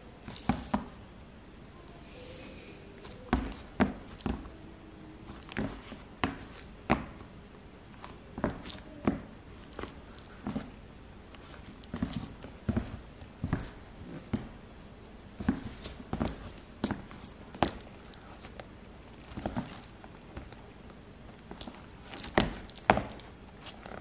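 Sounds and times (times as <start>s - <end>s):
footsteps on hardwood floor: 11.4s - 14.5s.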